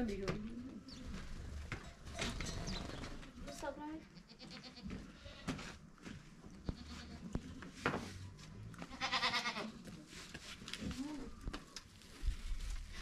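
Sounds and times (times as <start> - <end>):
goat or sheep bleating: 4.2 - 5.6, 6.6 - 7.3, 8.8 - 9.8.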